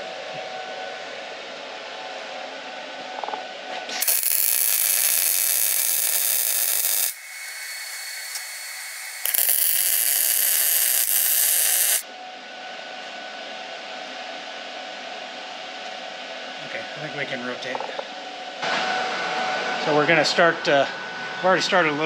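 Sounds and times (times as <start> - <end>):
arc welding crackling hiss: 3.9 - 12.0.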